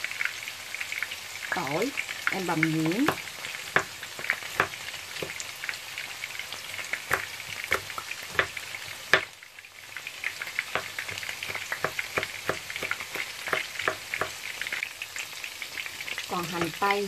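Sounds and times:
tofu sizzling in oil: 0:00.0 - 0:17.0
knife chopping on cutting board: 0:02.8 - 0:05.4, 0:07.1 - 0:09.3, 0:10.7 - 0:14.4.

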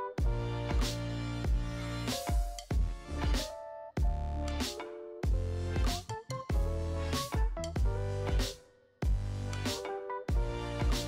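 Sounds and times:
electronic music with thumping beat: 0:00.0 - 0:11.0.

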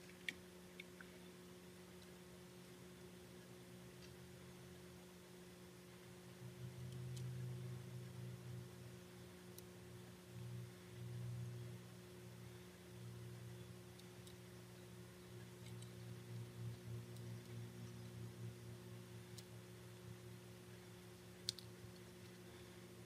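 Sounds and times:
faint electrical hum: 0:00.0 - 0:23.0
faint ticks: 0:21.2 - 0:22.5.

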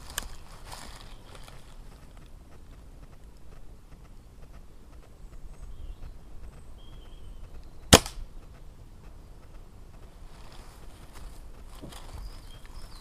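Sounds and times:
air rifle shot: 0:07.9 - 0:08.3.

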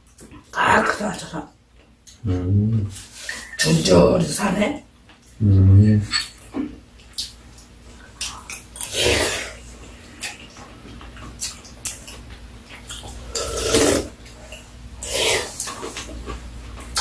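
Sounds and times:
wet slurping: 0:08.3 - 0:09.6, 0:12.9 - 0:16.0.

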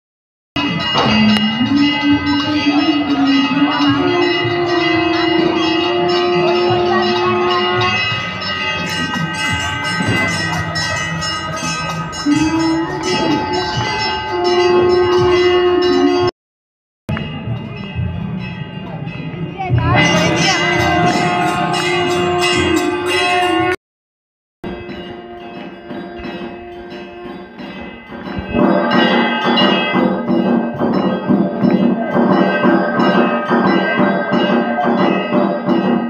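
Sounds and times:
long held low tone: 0:00.6 - 0:08.3, 0:11.9 - 0:16.3
bells ringing: 0:00.6 - 0:16.3, 0:17.1 - 0:23.8, 0:24.6 - 0:36.0.

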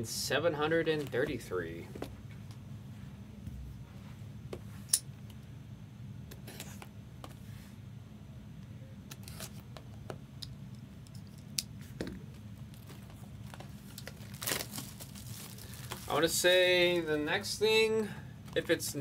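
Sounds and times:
low steady hum: 0:00.0 - 0:19.0
wrapper crinkling: 0:12.6 - 0:17.1.

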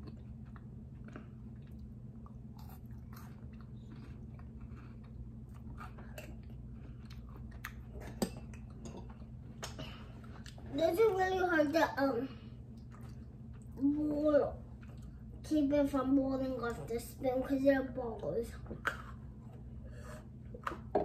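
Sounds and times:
person chewing food: 0:00.0 - 0:10.7, 0:12.6 - 0:13.8
steady low hum: 0:00.0 - 0:21.0.

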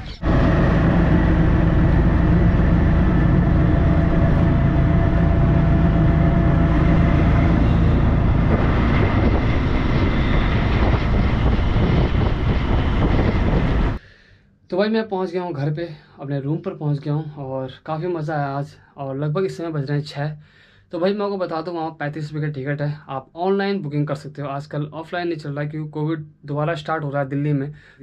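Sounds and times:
auto-rickshaw engine running: 0:00.0 - 0:14.0
rushing air while riding: 0:00.0 - 0:14.0.

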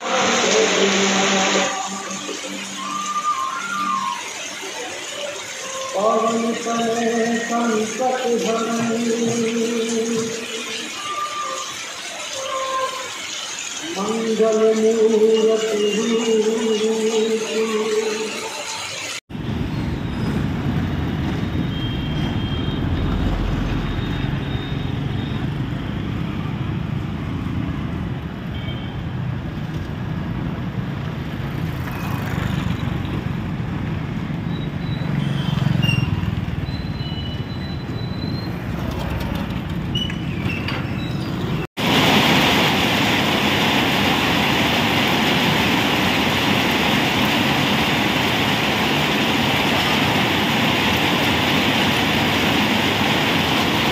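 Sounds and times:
heavy rain on road: 0:00.0 - 0:19.6, 0:20.6 - 0:36.9, 0:41.8 - 0:53.9
road traffic rumbling: 0:19.3 - 0:53.9.

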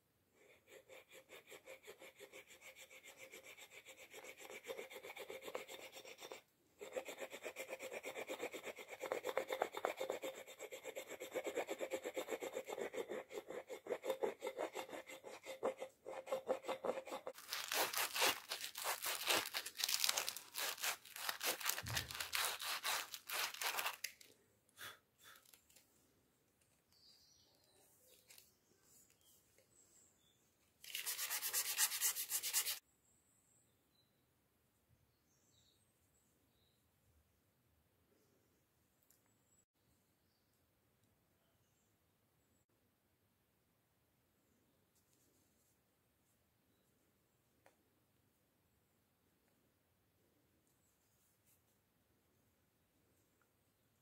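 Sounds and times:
sandpaper rubbing on wood: 0:00.8 - 0:24.0, 0:30.9 - 0:32.8
knife blade scraping wood: 0:13.8 - 0:19.7, 0:20.4 - 0:24.1.

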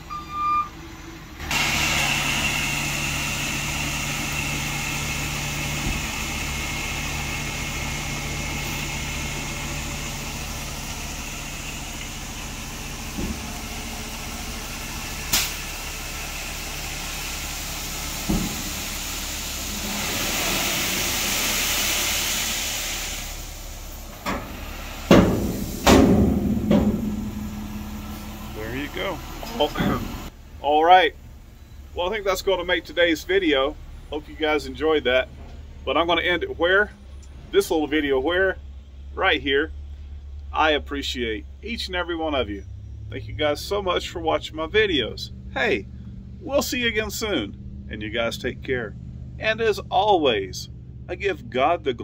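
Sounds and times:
truck engine running: 0:00.0 - 0:52.0
loud knocks: 0:25.1 - 0:27.5.

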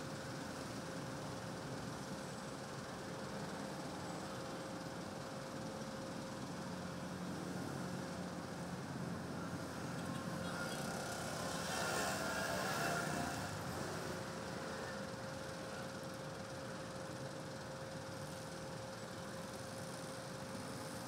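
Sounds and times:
city street traffic: 0:00.0 - 0:21.0
vehicle passing close: 0:10.5 - 0:14.2.

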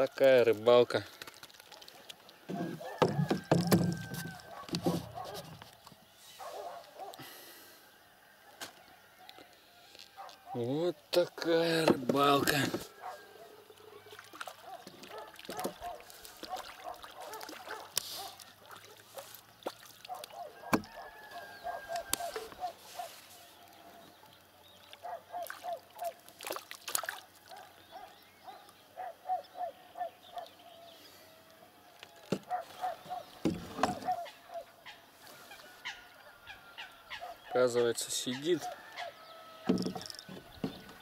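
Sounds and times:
fish splashing at surface: 0:01.1 - 0:02.3, 0:25.4 - 0:27.3
waterbird calling nasal notes: 0:12.5 - 0:24.2, 0:32.2 - 0:41.0.

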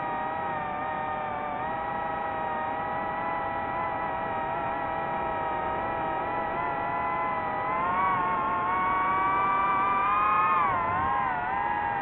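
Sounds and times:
drone propellers whining: 0:02.7 - 0:12.0.

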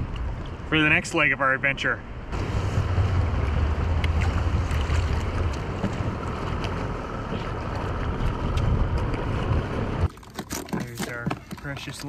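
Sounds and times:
wind rumbling on microphone: 0:02.0 - 0:10.2
water rushing past kayak: 0:02.4 - 0:10.3.

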